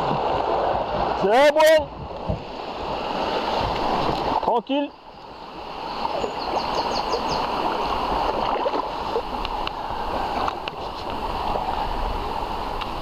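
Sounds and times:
paddles stroking through water: 0:00.0 - 0:13.0
water rushing along canoe hull: 0:00.0 - 0:13.0
faint clicks: 0:09.4 - 0:09.8.

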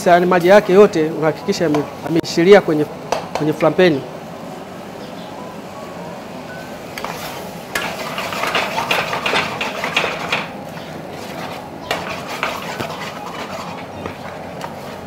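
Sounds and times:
ladle scraping a frying pan: 0:07.0 - 0:10.5, 0:11.1 - 0:15.0.

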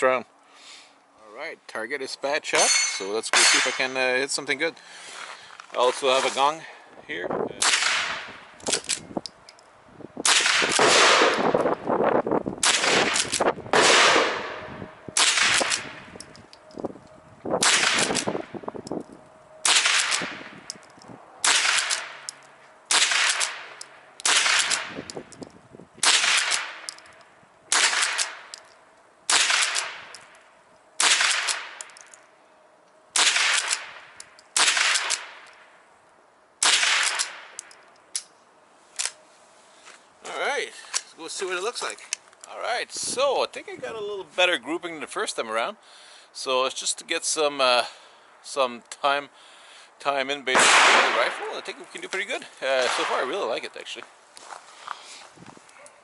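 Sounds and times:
rifle shots with echo: 0:07.6 - 0:08.4, 0:10.2 - 0:11.6, 0:12.6 - 0:16.0, 0:17.6 - 0:18.3, 0:19.6 - 0:20.5, 0:21.4 - 0:22.3, 0:22.9 - 0:25.0, 0:26.0 - 0:26.9, 0:27.7 - 0:28.5, 0:29.3 - 0:30.1, 0:31.0 - 0:31.9, 0:33.2 - 0:35.4, 0:36.6 - 0:37.6, 0:50.5 - 0:51.6, 0:52.8 - 0:53.4.

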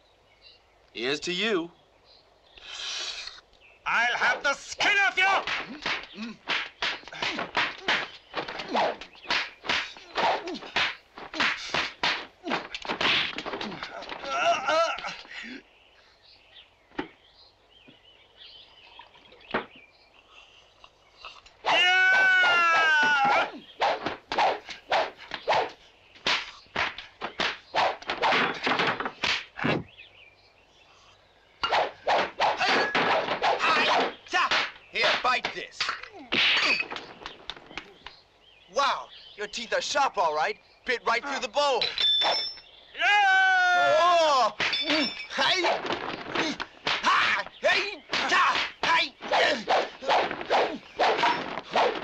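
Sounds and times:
fighters grunting: 0:05.2 - 0:06.5, 0:09.9 - 0:12.7, 0:13.5 - 0:15.6, 0:43.0 - 0:52.0
wooden thwacks: 0:05.2 - 0:15.3, 0:16.9 - 0:17.2, 0:19.5 - 0:19.8, 0:21.4 - 0:29.9, 0:31.6 - 0:38.2, 0:44.4 - 0:52.0
sticks striking: 0:05.4 - 0:13.8
staff swishes: 0:49.2 - 0:52.0.

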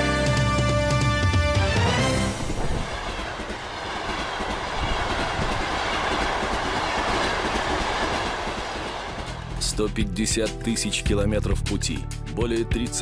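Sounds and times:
train running on rails: 0:02.2 - 0:09.7.

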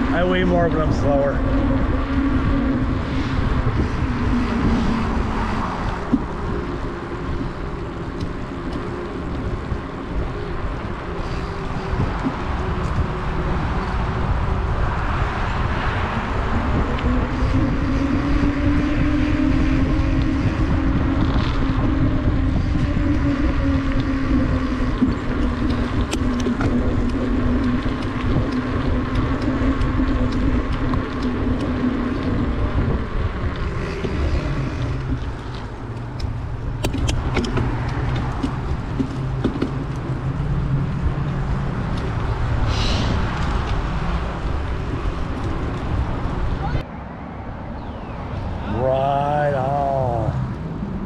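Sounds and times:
wind buffeting microphone: 0:00.0 - 0:51.0.

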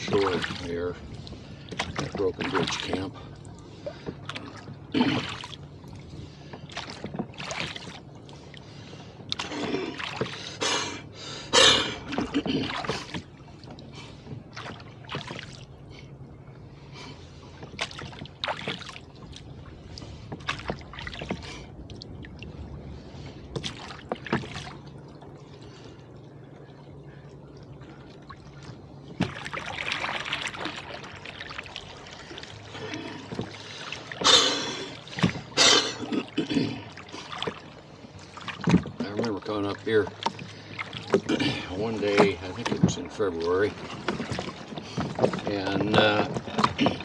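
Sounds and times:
oar blades splashing: 0:00.0 - 0:05.6, 0:06.2 - 0:15.6, 0:17.0 - 0:22.0, 0:23.0 - 0:24.9, 0:28.4 - 0:47.0
rush of water: 0:00.0 - 0:08.5, 0:16.9 - 0:47.0
oars knocking in oarlocks: 0:38.6 - 0:39.3, 0:40.1 - 0:47.0.

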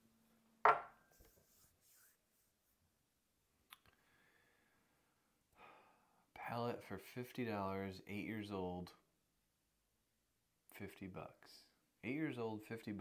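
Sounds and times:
glasses set down on wooden tray: 0:00.6 - 0:01.0.

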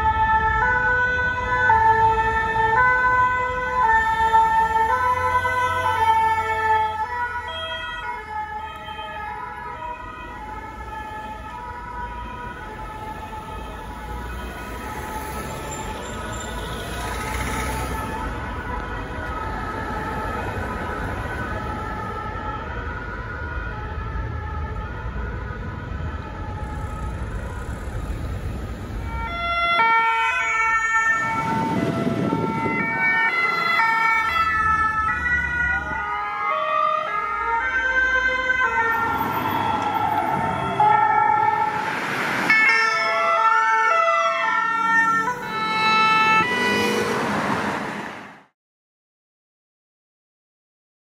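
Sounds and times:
several sirens wailing and yelping: 0:00.0 - 0:48.0
emergency vehicle siren: 0:00.0 - 0:48.6
road traffic: 0:00.0 - 0:48.6.

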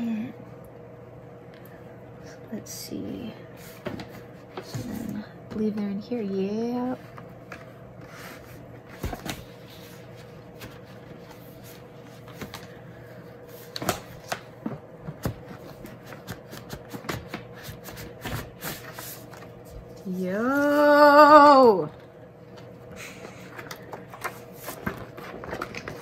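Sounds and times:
paper and cardboard rustling: 0:06.9 - 0:12.8, 0:13.4 - 0:20.8, 0:23.0 - 0:26.0.

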